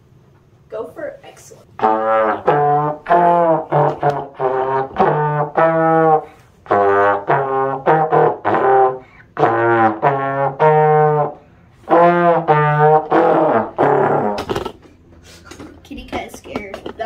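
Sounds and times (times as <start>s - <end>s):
trombone playing notes: 1.8s - 14.8s.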